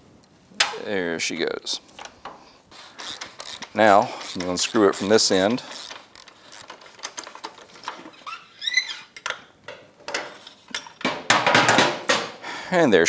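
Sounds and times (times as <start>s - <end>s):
metallic clicks of socket wrench: 3.0s - 6.7s.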